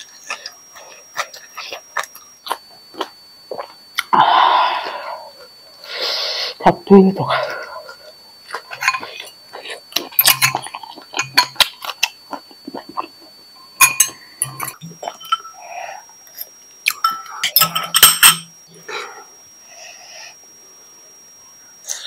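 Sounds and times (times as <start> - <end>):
chewing and mouth sounds: 0.0 - 4.2, 7.8 - 13.4
cutlery clinking on dishes: 10.1 - 11.7, 13.8 - 15.6, 16.9 - 18.5.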